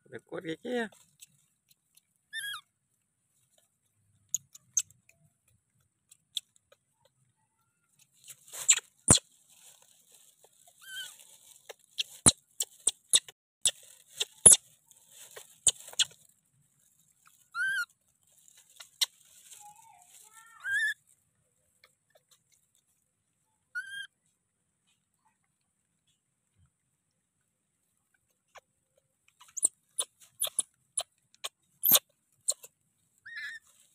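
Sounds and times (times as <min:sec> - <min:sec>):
baby monkey squeaky calls: 0:02.3 - 0:02.6, 0:08.5 - 0:09.2, 0:10.8 - 0:11.2, 0:11.9 - 0:14.6, 0:15.3 - 0:16.1, 0:17.5 - 0:17.9, 0:20.6 - 0:21.0, 0:23.7 - 0:24.1, 0:29.4 - 0:31.1, 0:31.8 - 0:33.7
leaves and twigs crackling: 0:08.0 - 0:21.2, 0:33.3 - 0:33.9.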